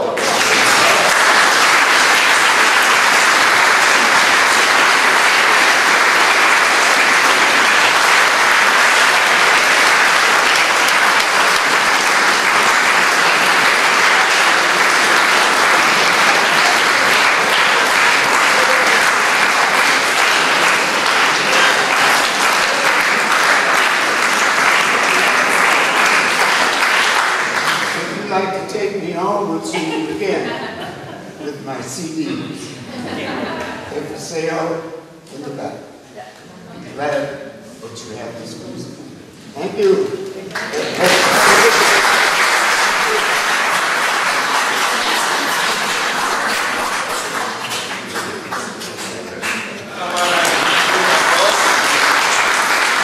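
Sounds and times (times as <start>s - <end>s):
audience applauding: 0.0s - 28.4s, 40.5s - 53.0s.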